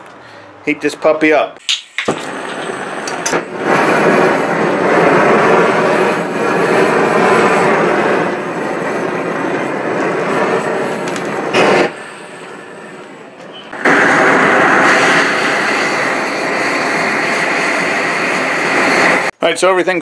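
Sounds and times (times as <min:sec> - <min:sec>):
gas torch burning with rushing: 0:01.6 - 0:19.4.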